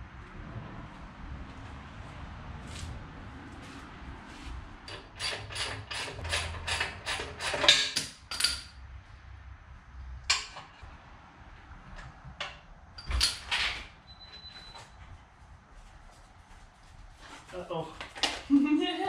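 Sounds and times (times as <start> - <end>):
metallic clicks and knocks: 4.9 - 8.8
tools clattering: 4.9 - 8.8.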